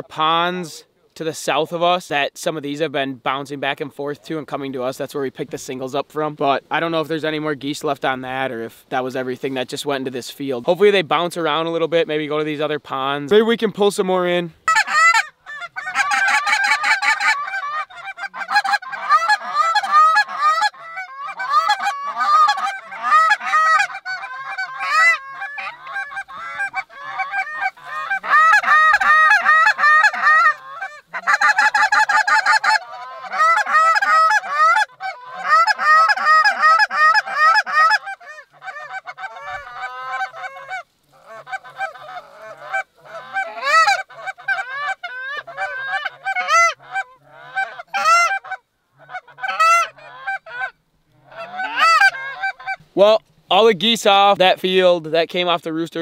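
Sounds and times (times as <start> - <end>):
geese honking: 14.6 - 52.8.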